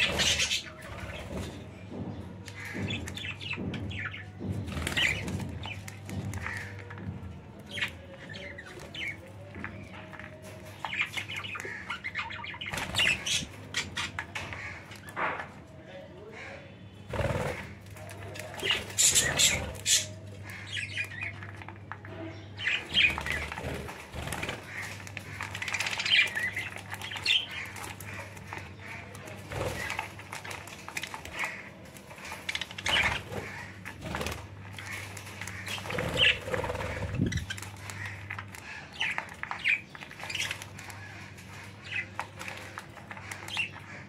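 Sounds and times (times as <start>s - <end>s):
beaks clicking on grain: 23.1s - 44.0s.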